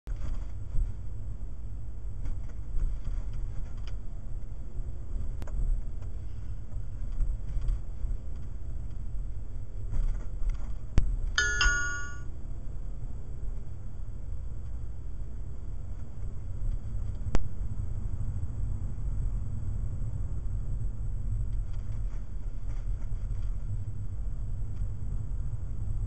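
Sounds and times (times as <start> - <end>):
car driving rumble: 0.1 - 11.4
short electronic chime: 11.4 - 12.2.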